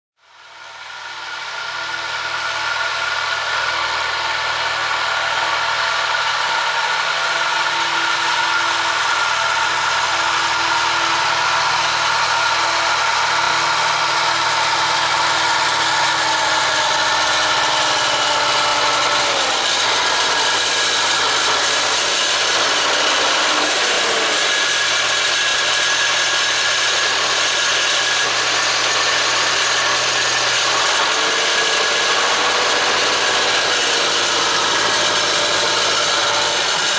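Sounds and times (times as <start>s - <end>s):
tractor diesel engine running: 0.6s - 36.9s.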